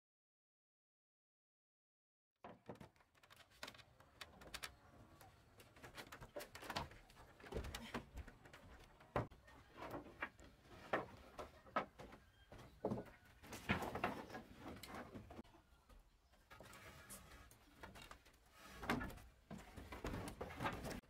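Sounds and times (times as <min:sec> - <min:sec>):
wooden boards knocking and clattering: 0:02.4 - 0:04.7, 0:05.4 - 0:15.4, 0:16.5 - 0:21.0.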